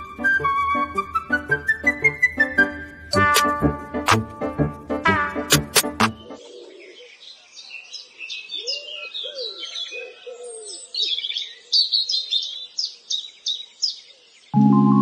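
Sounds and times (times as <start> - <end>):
songbirds chirping: 5.8 - 15.0.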